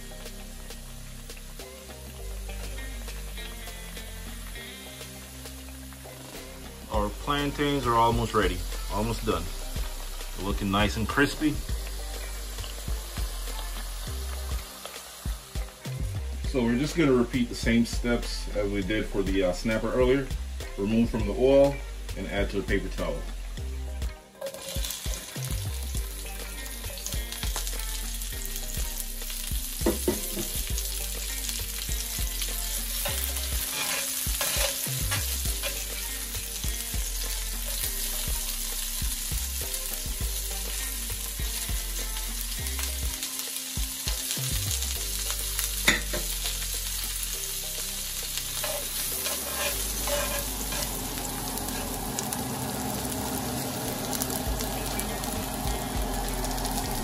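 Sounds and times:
vegetables sizzling in hot oil: 0.0s - 57.0s.

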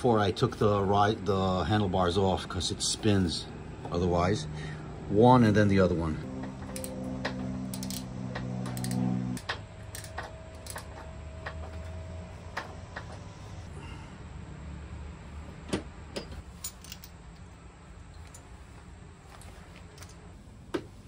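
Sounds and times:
low hum: 5.9s - 15.6s
ratchet wrench clicking: 6.6s - 7.0s, 7.7s - 11.6s.

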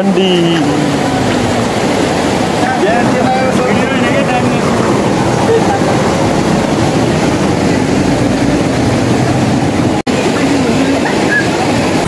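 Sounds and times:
stream flowing over stones: 0.0s - 12.0s.

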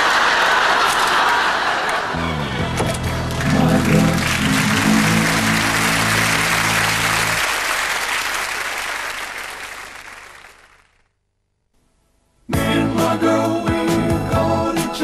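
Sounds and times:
audience applauding: 0.0s - 11.1s
theme music: 2.1s - 7.7s.

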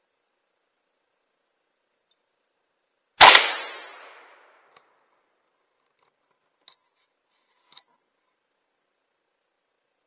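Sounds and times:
gunshot: 3.2s - 4.3s.

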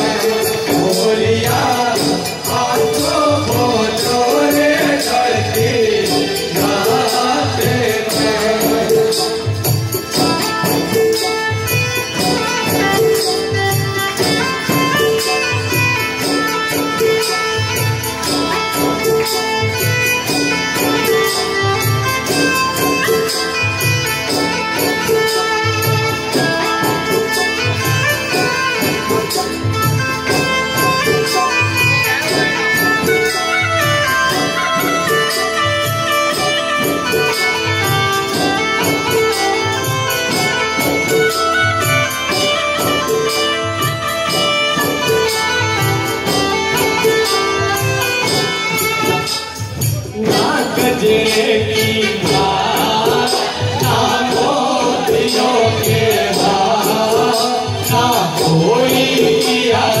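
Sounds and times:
group of voices singing: 0.0s - 9.6s, 50.1s - 60.0s
melody of held notes: 0.0s - 51.1s.

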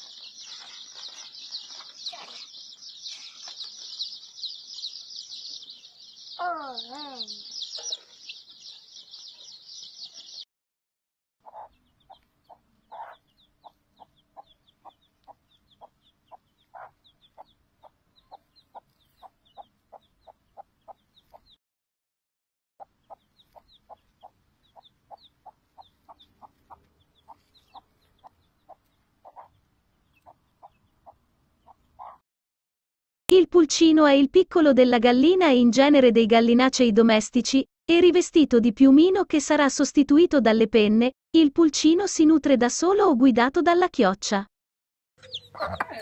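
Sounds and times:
chicks peeping: 0.0s - 10.4s, 11.4s - 21.6s, 22.8s - 32.2s, 45.2s - 46.0s
hen clucking: 11.4s - 21.6s, 22.8s - 32.2s, 45.2s - 46.0s.

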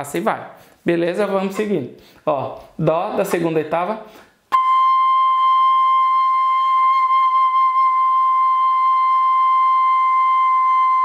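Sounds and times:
fife playing a high note: 4.5s - 11.0s.

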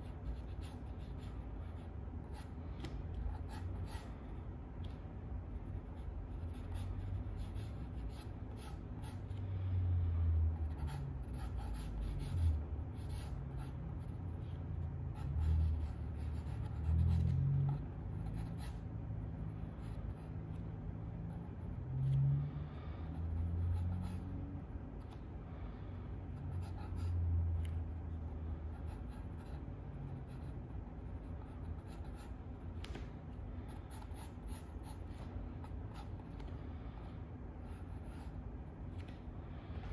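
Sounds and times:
pencil scratching on paper: 0.0s - 4.4s, 5.5s - 9.4s, 10.1s - 20.5s, 23.1s - 24.4s, 26.3s - 33.0s, 33.6s - 36.5s.

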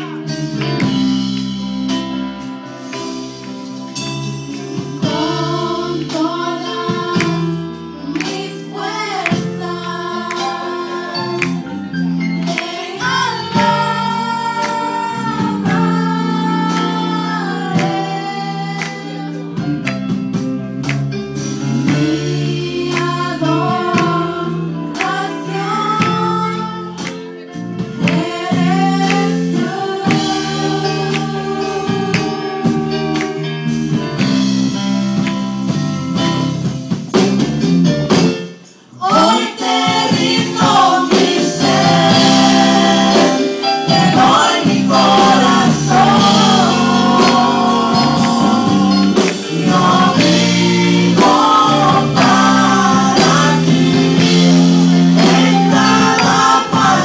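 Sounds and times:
drum kit: 0.0s - 57.0s
electric guitar: 0.0s - 57.0s
backing singers: 28.0s - 33.4s, 38.9s - 57.0s.

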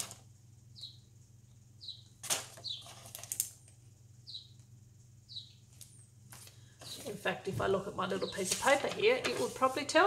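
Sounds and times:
small bird chirping: 0.4s - 7.2s, 8.0s - 8.7s
plastic sticker sheet crackling: 2.2s - 3.6s, 8.1s - 10.0s.

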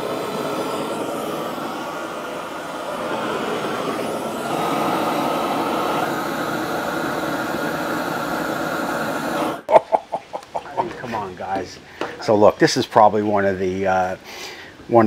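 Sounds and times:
propane torch roaring: 0.0s - 9.8s.

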